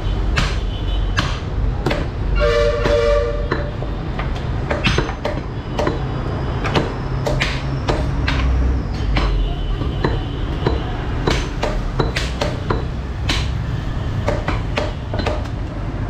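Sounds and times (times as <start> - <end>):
cleavers chopping on wooden blocks: 0.3 - 2.2, 2.8 - 13.6, 14.2 - 15.7
horn sounding: 2.3 - 3.9.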